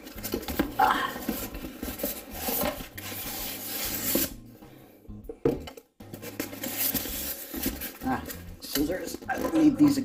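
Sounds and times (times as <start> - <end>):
styrofoam and cardboard scraping: 1.2 - 4.4, 6.2 - 8.3.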